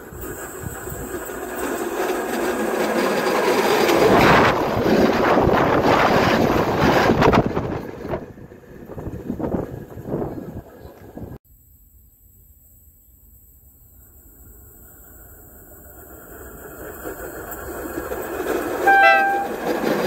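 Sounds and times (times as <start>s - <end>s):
train wheels rumbling on track: 0.0s - 11.2s.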